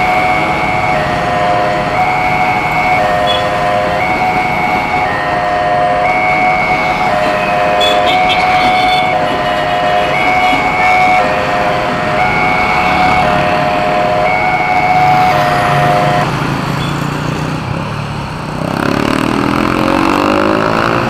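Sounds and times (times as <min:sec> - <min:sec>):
car engines idling: 0:00.0 - 0:16.9
level crossing warning siren: 0:00.0 - 0:17.7, 0:18.8 - 0:21.0
engine revving up: 0:18.5 - 0:21.0.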